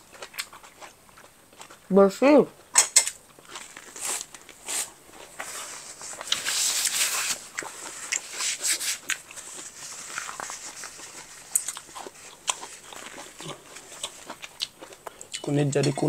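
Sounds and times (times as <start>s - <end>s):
rustling hiss: 3.9s - 12.8s.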